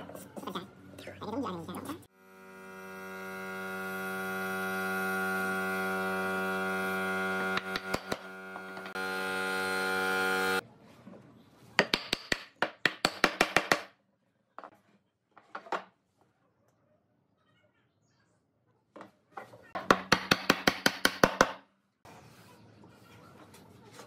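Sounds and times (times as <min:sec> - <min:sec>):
humming drone: 0:02.2 - 0:10.6.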